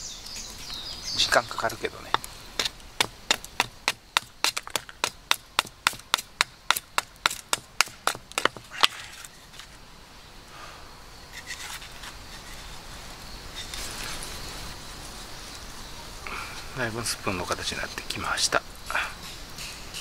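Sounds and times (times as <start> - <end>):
knife chopping wood: 2.1 - 9.2.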